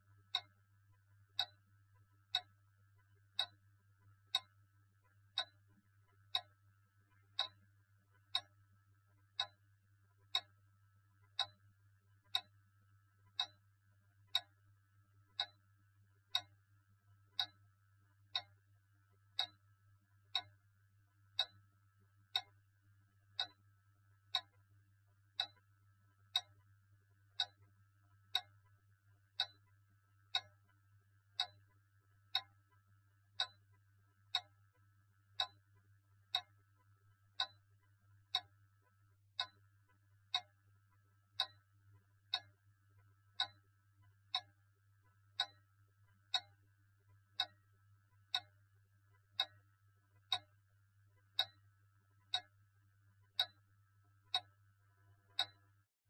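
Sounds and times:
low steady hum: 0.0s - 55.9s
clock ticking: 0.2s - 11.6s, 12.2s - 13.7s, 14.3s - 14.6s, 15.2s - 18.6s, 19.2s - 22.7s, 23.3s - 50.6s, 51.2s - 55.7s.

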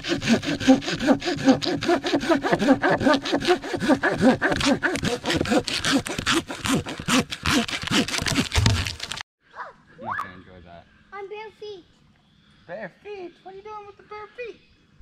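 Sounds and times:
hand saw cutting log: 0.0s - 9.2s.

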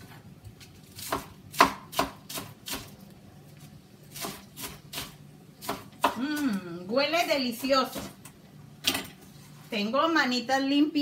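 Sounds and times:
knife chopping lettuce on board: 0.9s - 3.0s, 4.1s - 6.4s.

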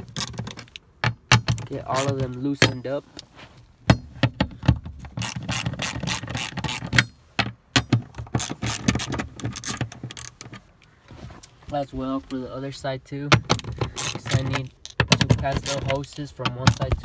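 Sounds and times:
ratchet wrench clicking: 5.2s - 7.1s, 8.4s - 10.3s, 14.0s - 15.0s.

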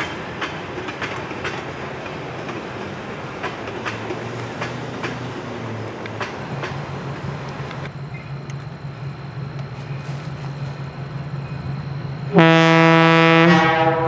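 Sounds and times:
locomotive air horn blast: 12.3s - 14.0s.

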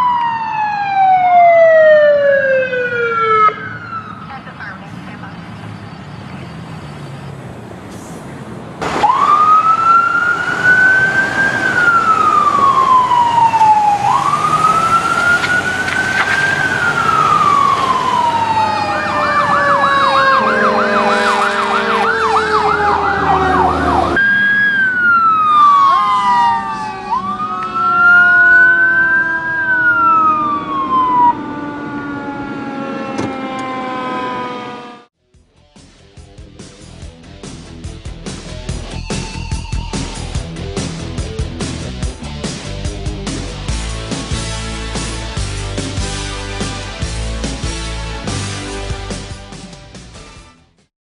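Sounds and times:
fire engine sirens: 0.0s - 35.2s
horn blaring: 10.6s - 24.5s, 26.0s - 35.1s.

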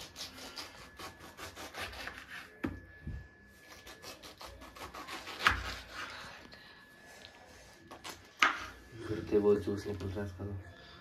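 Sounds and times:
knife cutting pineapple: 0.0s - 2.8s, 3.6s - 6.3s.

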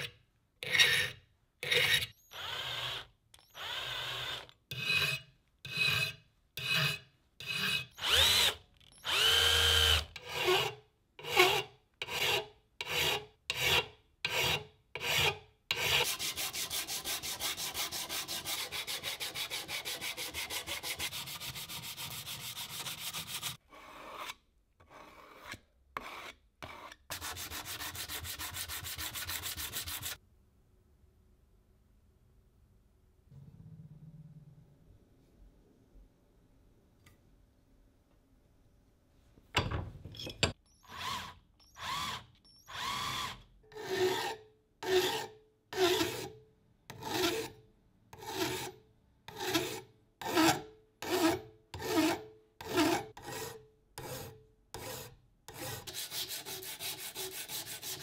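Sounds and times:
sanding block rubbing steel: 15.8s - 24.3s, 25.3s - 30.2s, 54.8s - 58.0s.

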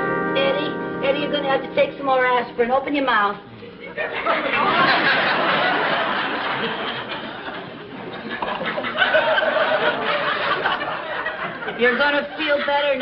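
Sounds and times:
studio audience laughing: 3.8s - 13.0s.

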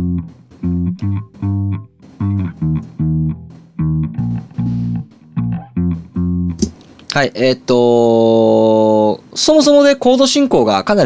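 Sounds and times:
electric bass playing short notes: 0.0s - 6.8s.

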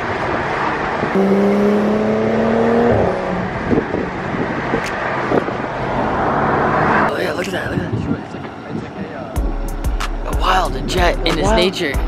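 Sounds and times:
car engine accelerating: 0.0s - 7.3s
road and tyre noise: 0.0s - 12.0s.

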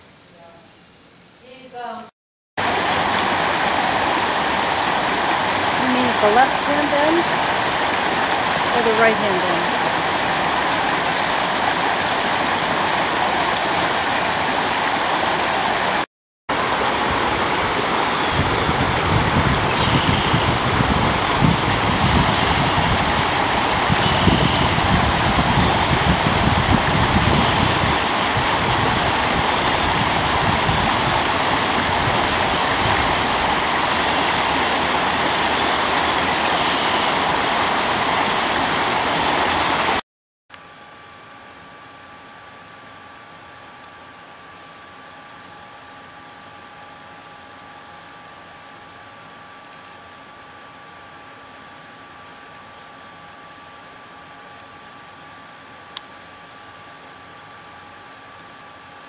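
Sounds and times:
creek water rushing over rocks: 2.6s - 40.0s.

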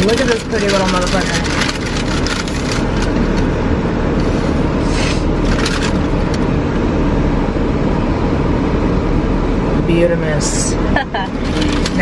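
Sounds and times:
paper bag rustling: 0.0s - 3.5s, 4.2s - 6.3s
car idling drone: 0.0s - 12.0s.

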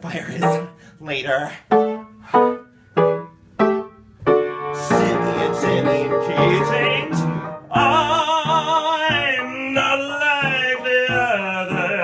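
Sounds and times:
piano chords: 0.0s - 0.9s, 1.6s - 12.0s.

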